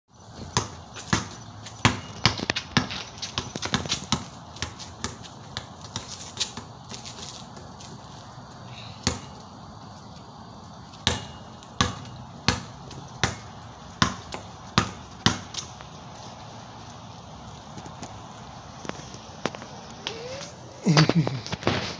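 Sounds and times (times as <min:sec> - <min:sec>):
basketball bouncing on concrete: 0:00.3 - 0:08.3, 0:08.9 - 0:09.6, 0:10.8 - 0:15.9.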